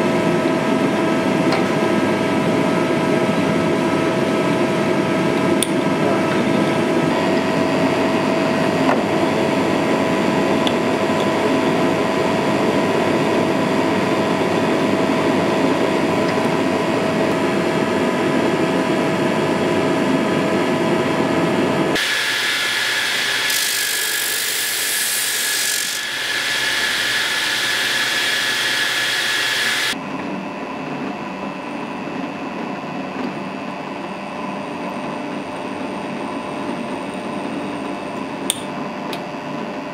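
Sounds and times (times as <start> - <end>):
drill press cutting metal: 22.0 - 30.0.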